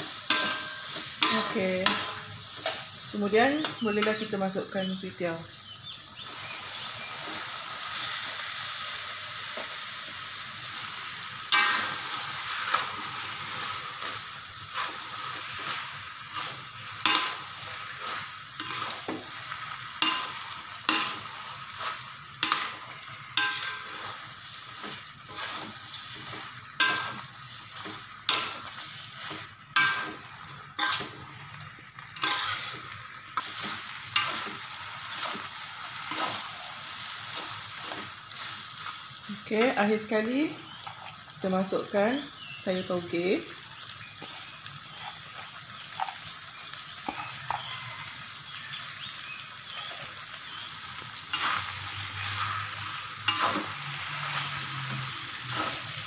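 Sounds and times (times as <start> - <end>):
metal spatula scraping wok: 0.0 - 4.3, 10.8 - 39.7, 51.3 - 56.0
food sizzling in a wok: 0.0 - 56.0.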